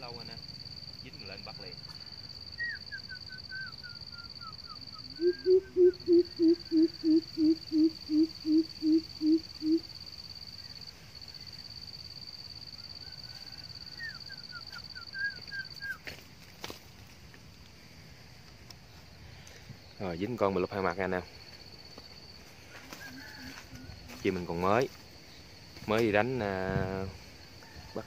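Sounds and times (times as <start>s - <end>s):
small bird chirping: 1.1s - 9.9s
coucal hooting call: 2.5s - 9.9s, 13.0s - 16.0s, 22.8s - 24.2s.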